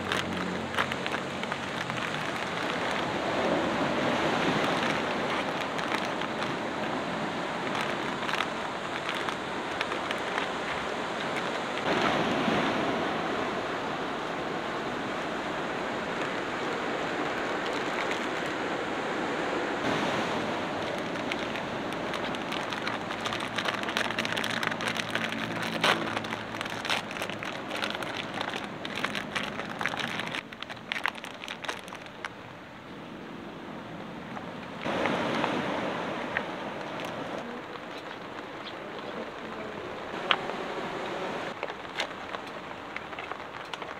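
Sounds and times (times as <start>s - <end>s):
plastic packets crinkling: 0.0s - 11.9s, 17.4s - 18.6s, 20.7s - 32.3s, 36.8s - 39.8s, 41.5s - 43.9s
surf: 0.0s - 43.9s
wind: 0.0s - 43.9s.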